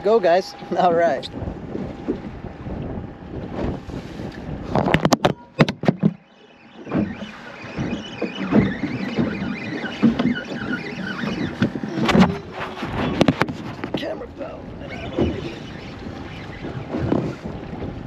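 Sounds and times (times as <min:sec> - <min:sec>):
fishing reel drag squealing: 0:06.2 - 0:12.9, 0:14.8 - 0:17.5.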